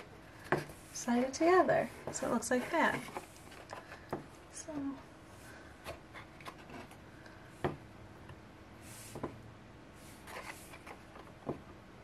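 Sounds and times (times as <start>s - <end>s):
paper rustling and sliding: 10.0s - 11.2s.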